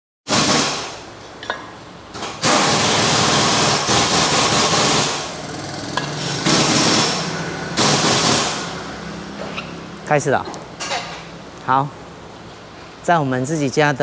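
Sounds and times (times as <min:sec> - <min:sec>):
car lift power unit hissing: 0:02.0 - 0:10.0.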